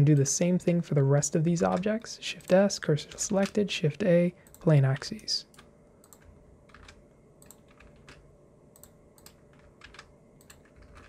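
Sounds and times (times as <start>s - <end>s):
keyboard and mouse clicks: 5.5s - 11.0s.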